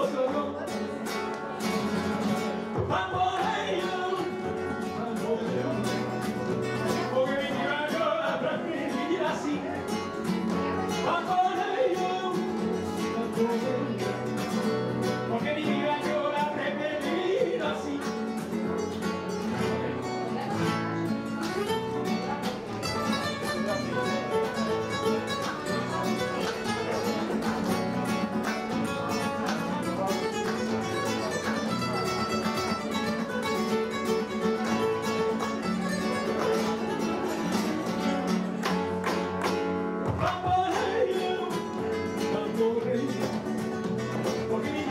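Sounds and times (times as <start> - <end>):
nylon-string guitars strumming: 0.0 - 44.9
picked guitar melody: 0.0 - 44.9
hand-clapping: 25.4 - 32.8, 36.1 - 36.9, 37.5 - 40.9.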